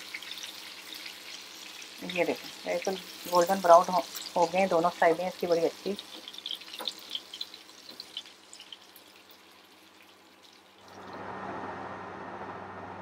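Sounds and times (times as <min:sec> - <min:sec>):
hot oil crackling and spitting: 0:00.0 - 0:11.4.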